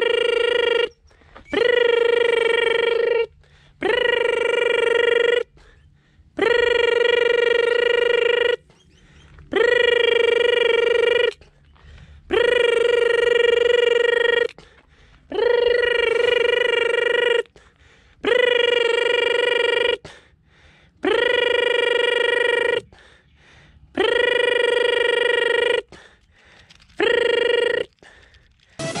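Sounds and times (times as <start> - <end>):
loud pitched tone with upward slide: 28.8 - 29.0.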